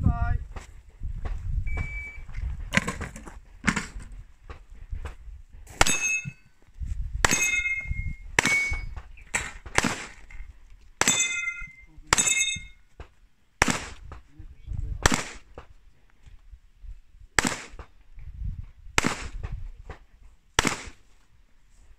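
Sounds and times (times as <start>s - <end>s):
metallic ring of steel targets: 5.8s - 6.6s, 7.2s - 9.0s, 11.0s - 12.8s
handgun shots: 7.3s - 10.2s, 13.6s - 14.1s, 15.0s - 15.5s, 17.4s - 17.8s, 19.0s - 19.5s, 20.6s - 21.0s.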